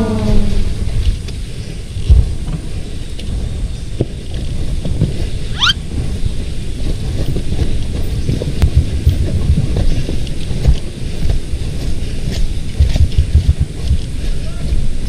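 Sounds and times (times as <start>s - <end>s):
low thumps: 0.0s - 11.5s
dirt bike engine rumble: 0.0s - 15.0s
wind buffeting microphone: 0.0s - 15.0s
short rising whistle: 5.6s - 5.8s.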